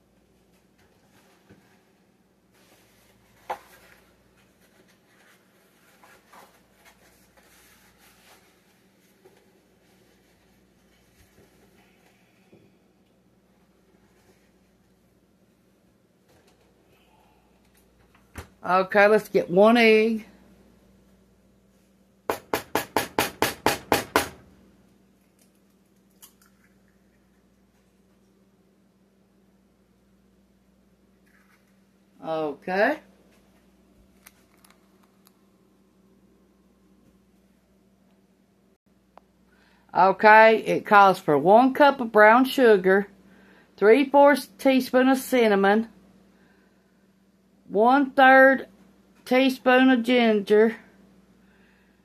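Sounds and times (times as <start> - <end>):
rustling and handling noises: 0.2 - 12.8, 13.4 - 16.9, 31.2 - 32.2, 33.1 - 35.8
soft scrapes: 1.0 - 12.5.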